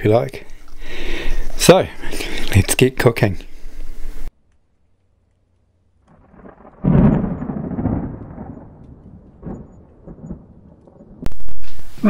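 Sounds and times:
deep boom: 6.2 - 11.6.

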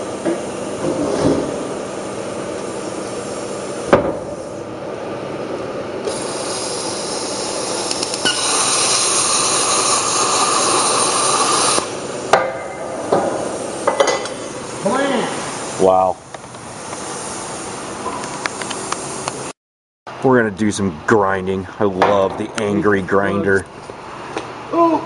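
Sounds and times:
plasma cutter cutting metal: 6.1 - 11.9.

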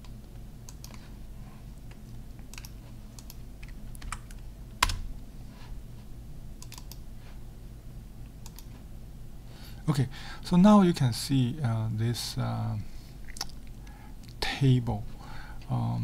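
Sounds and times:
computer keyboard typing: 2.5 - 5.0, 6.6 - 7.0.

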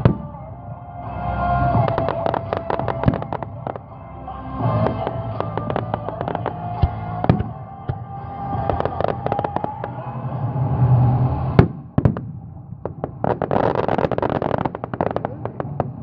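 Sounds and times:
fireworks popping and crackling: 1.7 - 3.9, 4.7 - 10.0, 11.5 - 16.0
fireworks loud bang: 11.5 - 16.0.

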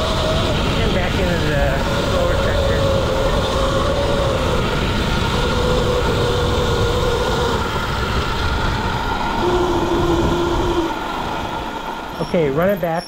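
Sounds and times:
electric motor whine: 0.0 - 12.9
wind on microphone: 0.0 - 13.0
rattle from rough ground: 12.0 - 13.0.

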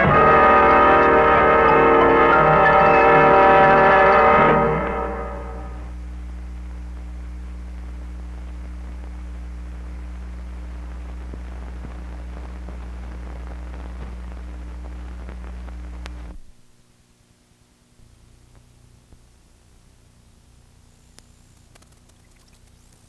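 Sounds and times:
music: 0.0 - 5.9
low electrical hum with hiss: 0.0 - 23.0
faint crackles: 5.7 - 23.0.

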